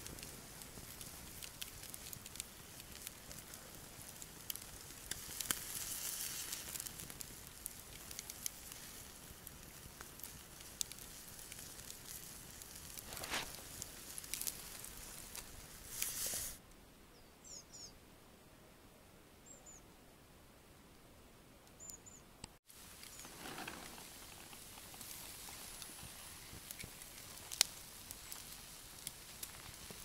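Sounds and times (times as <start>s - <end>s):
campfire embers crackling: 0.0s - 16.6s, 22.6s - 30.0s
food sizzling on grill: 0.0s - 16.6s, 22.7s - 30.0s.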